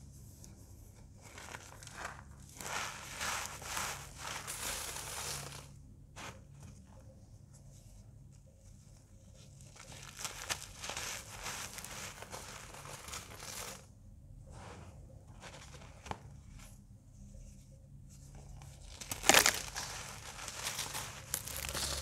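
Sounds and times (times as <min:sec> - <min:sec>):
cornstarch blocks crunching: 0:01.2 - 0:05.8, 0:09.6 - 0:13.9, 0:18.7 - 0:22.0.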